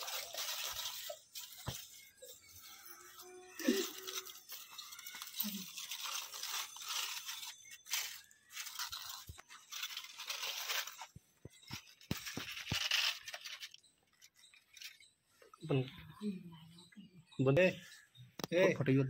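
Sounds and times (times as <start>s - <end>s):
aluminium foil crinkling: 0.0s - 15.1s.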